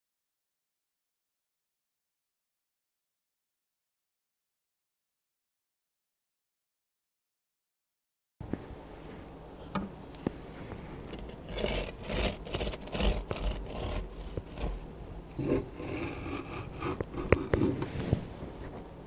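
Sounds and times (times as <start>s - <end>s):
bread knife sawing through loaf: 11.2s - 17.9s.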